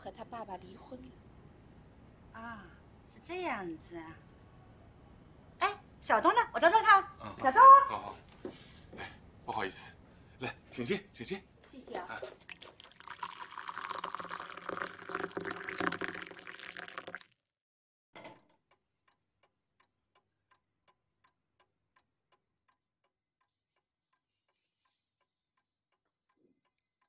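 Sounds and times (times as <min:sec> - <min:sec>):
clock ticking: 0:18.4 - 0:27.0.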